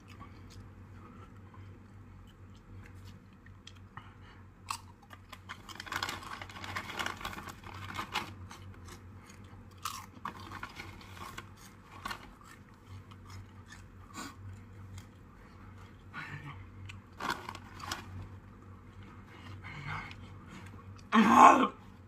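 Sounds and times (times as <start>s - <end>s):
person chewing crunchy chips: 4.6s - 16.0s, 16.8s - 18.3s.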